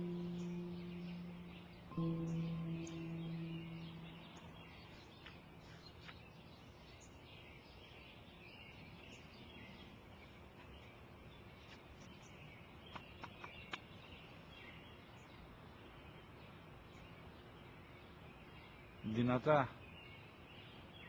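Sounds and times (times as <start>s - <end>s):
distant birds chirping: 0.0s - 8.2s.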